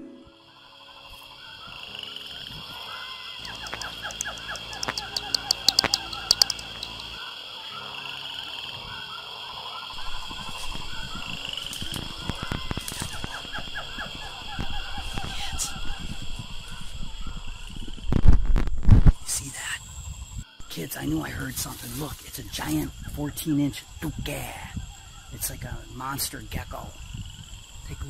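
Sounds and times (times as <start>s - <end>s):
frogs calling: 0.0s - 18.2s, 19.2s - 28.0s
high insect drone: 0.0s - 28.0s
sharp clicks: 3.4s - 7.2s
rustling through undergrowth: 21.2s - 22.9s.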